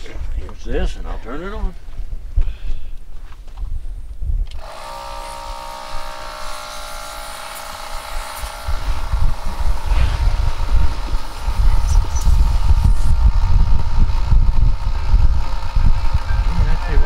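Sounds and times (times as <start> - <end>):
air compressor running: 4.5 - 17.0
low rumbling noise: 4.6 - 17.0.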